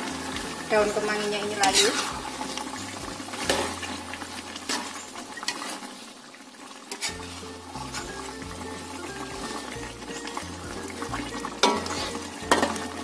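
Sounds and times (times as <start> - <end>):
light sizzle: 0.0 - 13.0
metal spatula scraping a wok: 1.5 - 5.8, 6.9 - 8.3, 11.5 - 13.0.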